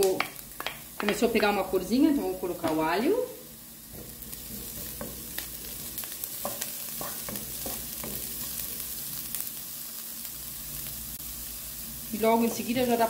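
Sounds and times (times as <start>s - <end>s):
onion sizzling in frying pan: 0.0s - 13.0s
wooden spoon scraping pan: 3.9s - 8.2s.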